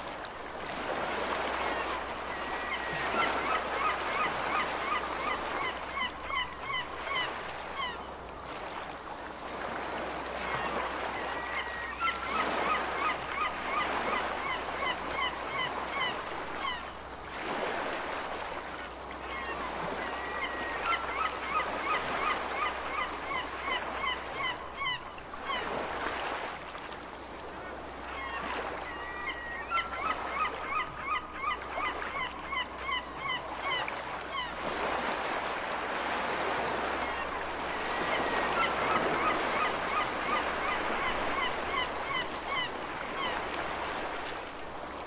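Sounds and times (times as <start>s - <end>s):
gull calling: 19.3s - 25.6s, 28.1s - 34.6s.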